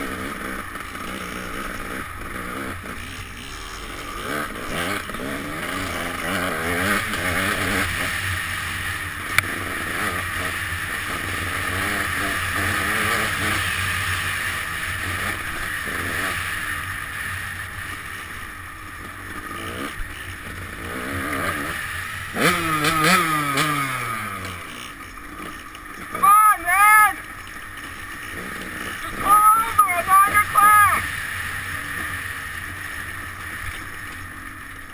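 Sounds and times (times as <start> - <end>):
dirt bike engine revving: 0.0 - 34.9.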